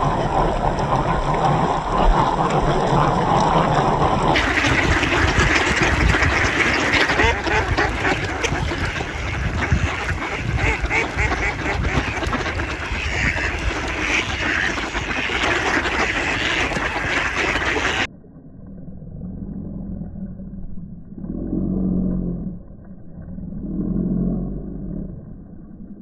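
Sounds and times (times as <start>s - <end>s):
ducks quacking: 0.0s - 18.1s
low rumble: 0.0s - 26.0s.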